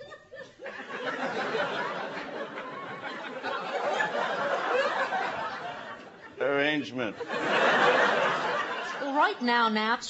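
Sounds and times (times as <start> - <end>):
studio audience laughing: 0.0 - 9.4.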